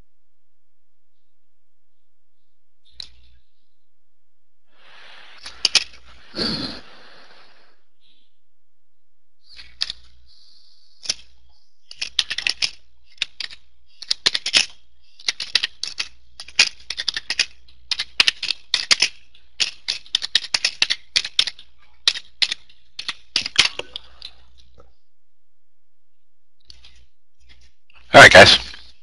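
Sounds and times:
keyboard typing: 11.0 - 24.4.

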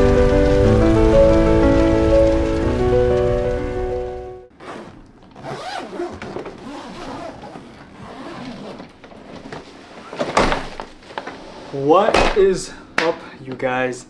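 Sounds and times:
suitcase zipper being pulled: 4.5 - 10.2.

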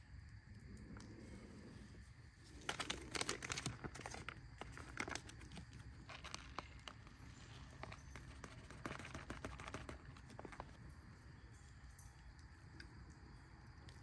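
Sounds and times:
plastic pouch crinkling: 2.5 - 10.8.

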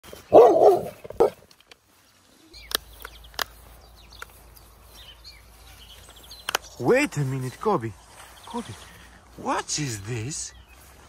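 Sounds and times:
dog barking: 0.3 - 1.4.

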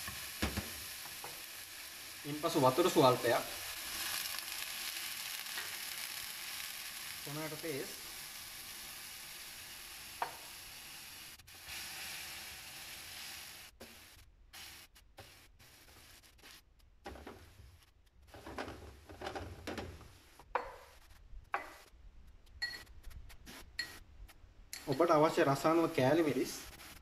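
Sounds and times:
sauce sizzling in frying pan: 0.0 - 16.6.

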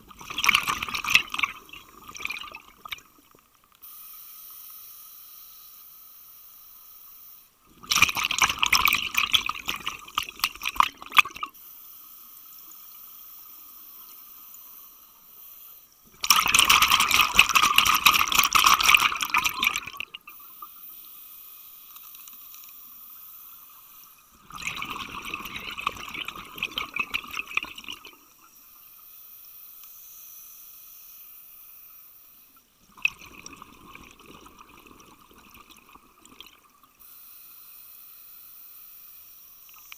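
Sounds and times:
bubbles gurgling underwater: 0.0 - 3.1, 7.8 - 11.5, 16.1 - 20.2, 24.4 - 28.1.

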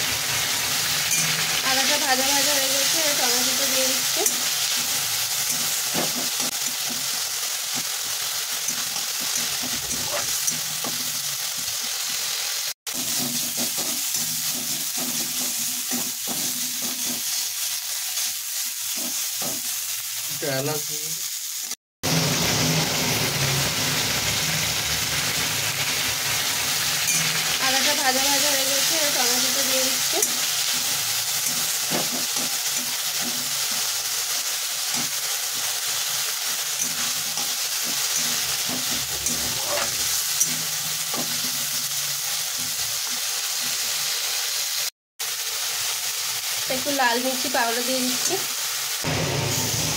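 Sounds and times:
food sizzling in hot oil: 0.0 - 49.9
metal spatula scraping wok: 12.9 - 17.5, 26.8 - 27.6, 29.5 - 43.9.

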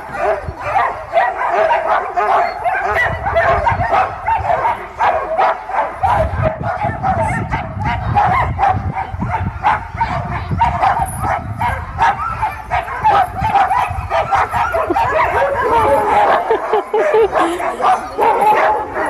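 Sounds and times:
sled dogs barking and yelping: 0.0 - 19.0.

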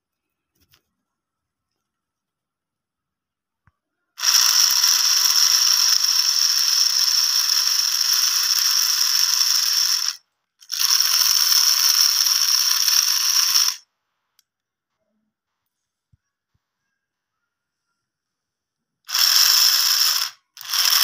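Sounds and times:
small motor whirring with gear rattle: 4.2 - 13.8, 19.1 - 21.0.

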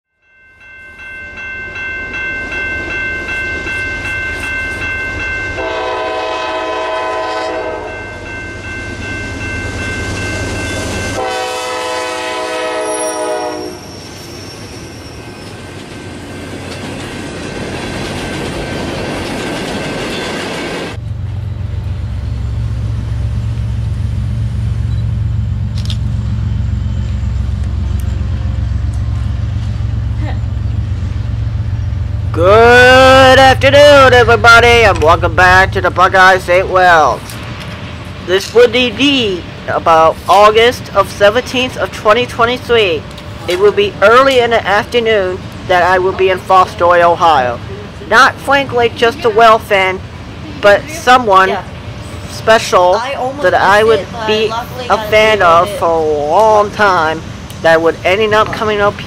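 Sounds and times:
diesel locomotive rumble: 1.3 - 59.0
freight cars rolling on rails: 1.3 - 59.0
locomotive horn blasts: 5.6 - 8.1, 11.1 - 13.9.

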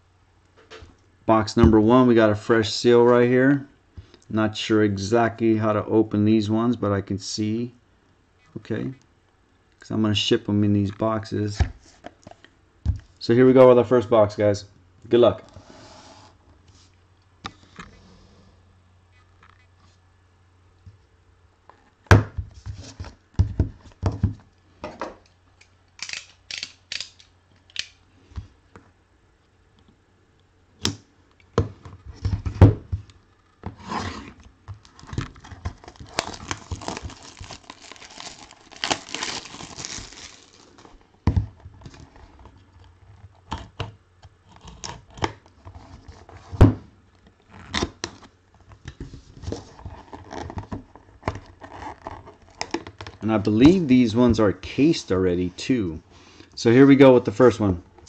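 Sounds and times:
plastic seal tearing: 34.8 - 41.0
plastic crinkling: 34.8 - 42.8.

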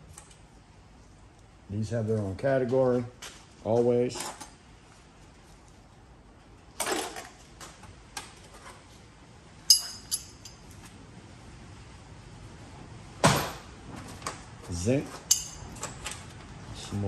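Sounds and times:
scrap metal clinking: 9.7 - 10.8, 15.1 - 16.0.

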